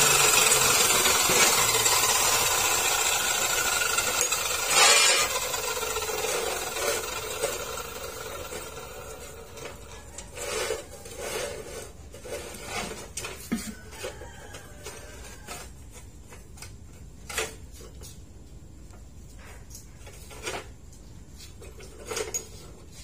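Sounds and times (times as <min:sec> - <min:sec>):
chop saw humming: 0:00.0 - 0:11.8.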